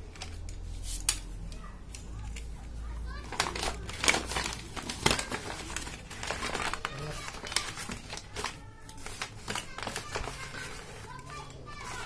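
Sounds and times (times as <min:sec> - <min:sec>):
paper mailer bag crinkling: 0:03.1 - 0:12.0.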